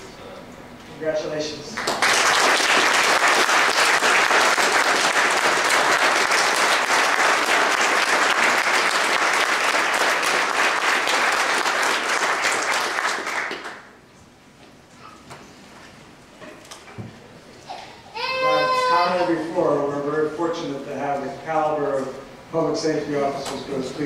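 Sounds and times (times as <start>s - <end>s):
audience applauding: 1.8s - 13.9s.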